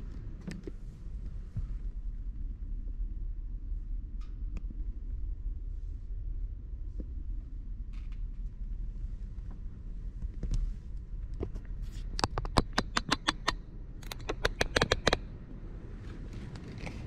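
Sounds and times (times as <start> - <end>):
steady low rumble: 0.0 - 17.0
sharp clicks: 12.2 - 15.2.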